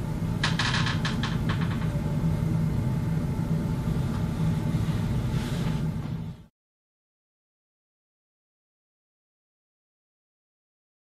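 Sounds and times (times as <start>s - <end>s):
low room hum: 0.0s - 6.5s.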